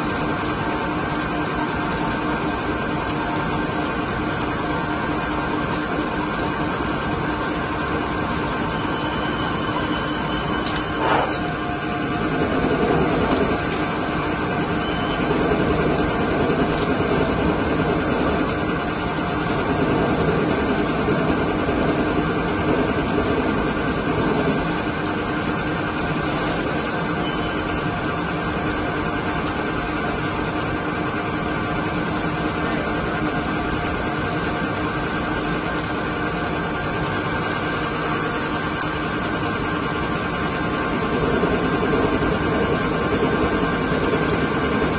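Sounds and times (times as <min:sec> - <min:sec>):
lathe mechanical hum: 0:00.0 - 0:44.9
coolant spray hiss: 0:25.4 - 0:27.2.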